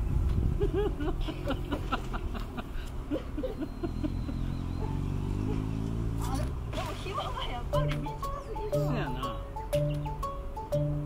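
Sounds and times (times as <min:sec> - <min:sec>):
person laughing: 0:00.6 - 0:04.5.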